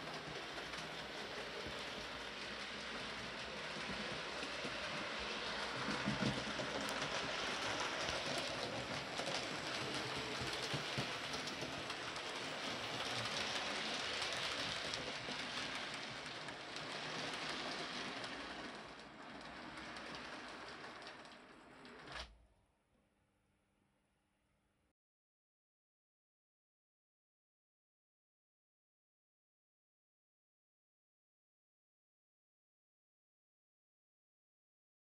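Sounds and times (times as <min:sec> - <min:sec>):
model train rattling on track: 0:00.0 - 0:22.3.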